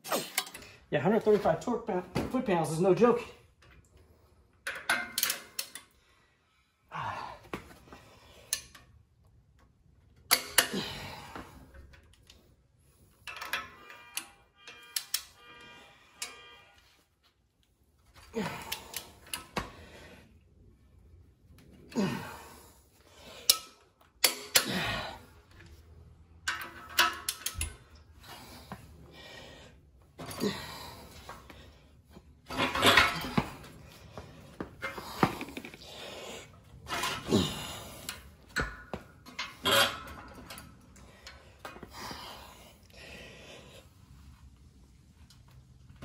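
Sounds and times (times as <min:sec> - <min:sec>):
torque wrench clicking on bolts: 0:26.5 - 0:27.7.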